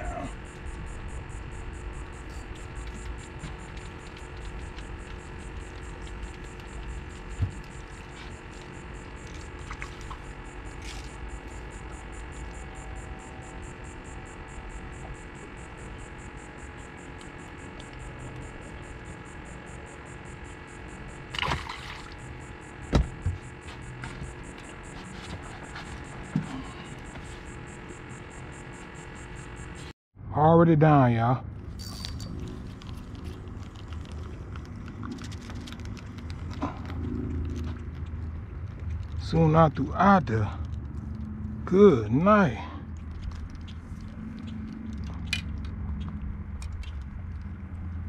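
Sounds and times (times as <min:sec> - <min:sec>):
steady hum with tones: 0:00.0 - 0:48.0.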